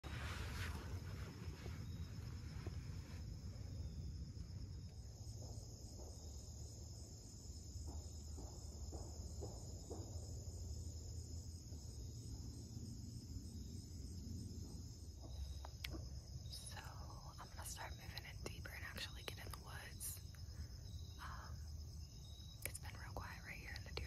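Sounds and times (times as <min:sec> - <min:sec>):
faint rustles: 0:00.0 - 0:05.6
low wind rumble: 0:00.0 - 0:08.3
insects trilling: 0:00.1 - 0:24.0.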